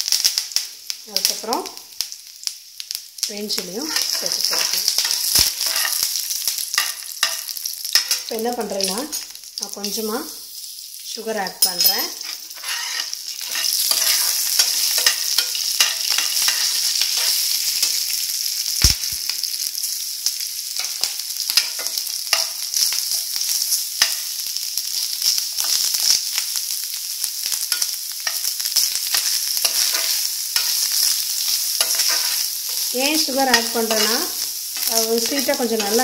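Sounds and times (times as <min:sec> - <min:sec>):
food sizzling in hot oil: 0:00.0 - 0:36.0
metal spoon scraping a pan: 0:03.8 - 0:09.2, 0:11.6 - 0:18.0, 0:20.8 - 0:24.3, 0:27.7 - 0:36.0.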